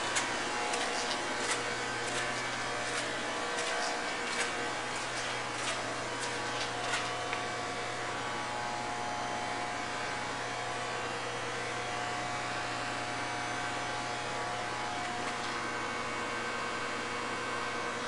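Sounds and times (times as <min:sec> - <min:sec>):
machinery hum and hiss: 0:00.0 - 0:09.1.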